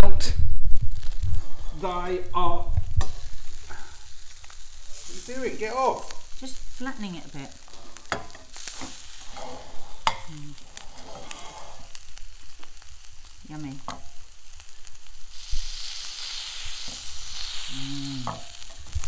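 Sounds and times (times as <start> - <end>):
sandwich sizzling in a frying pan: 0.0 - 19.0
metal spatula scraping a pan: 7.5 - 12.9.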